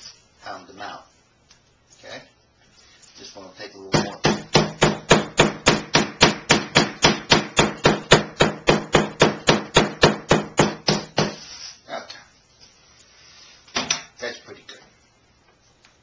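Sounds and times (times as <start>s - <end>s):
meat pounder striking meat on board: 4.0s - 11.4s.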